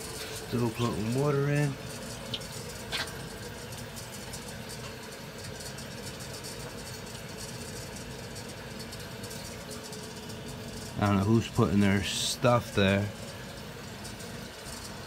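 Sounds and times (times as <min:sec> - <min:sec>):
water rushing through pipe: 0:00.0 - 0:15.0.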